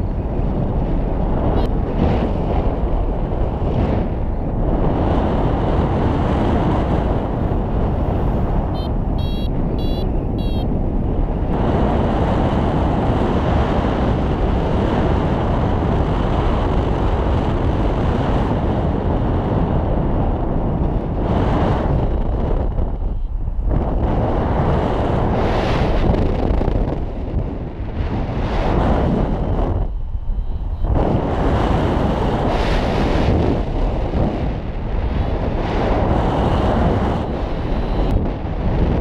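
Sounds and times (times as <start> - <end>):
wind buffeting microphone: 0.0 - 39.0
short high electronic beeps: 8.8 - 10.7.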